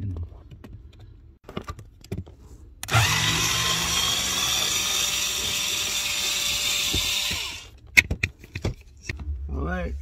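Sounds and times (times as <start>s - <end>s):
cordless drill motor whine: 2.8s - 7.7s.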